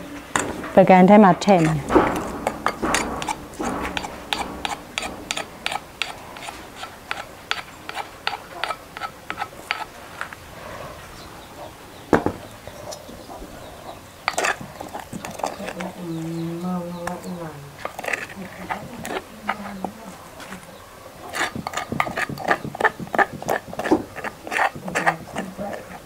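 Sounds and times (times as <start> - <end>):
scraping in mortar: 0.0 - 10.4, 14.2 - 26.0
pestle tapping in wooden mortar: 0.4 - 9.9, 14.3 - 16.0, 17.0 - 20.0, 21.3 - 26.0
loud knock on mortar: 1.4 - 7.7, 12.1 - 12.4.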